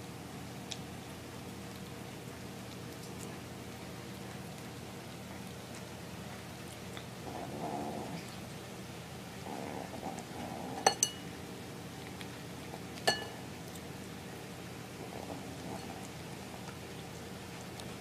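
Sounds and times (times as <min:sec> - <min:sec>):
plate clinking: 0:10.8 - 0:11.2, 0:13.1 - 0:13.4.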